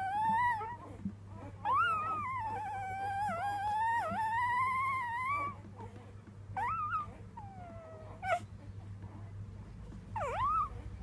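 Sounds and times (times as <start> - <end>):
puppy yelp: 0.0 - 5.6, 6.6 - 8.5, 10.1 - 10.8
puppy whining: 0.0 - 9.3, 10.1 - 11.0.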